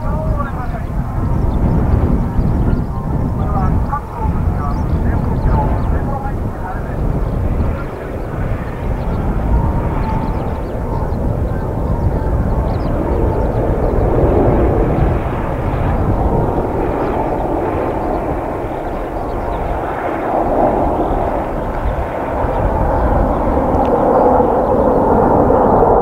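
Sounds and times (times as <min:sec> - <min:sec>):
jets flying past: 0:00.0 - 0:26.0
wind rumble on microphone: 0:00.0 - 0:26.0.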